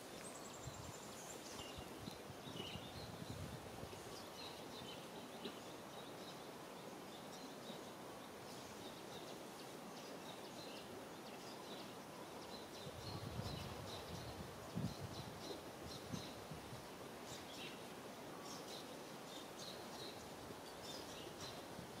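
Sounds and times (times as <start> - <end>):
small birds chirping: 0.0 - 16.5
outdoor background noise: 0.0 - 22.0.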